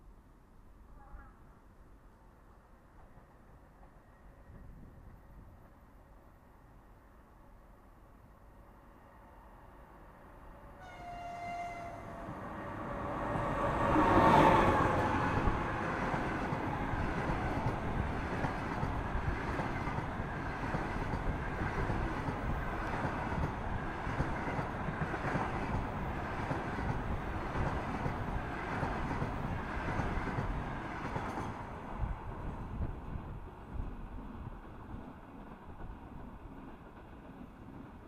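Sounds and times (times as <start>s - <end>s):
electric locomotive passing: 1.9s - 38.0s
train wheels rumbling on rails: 11.0s - 38.0s.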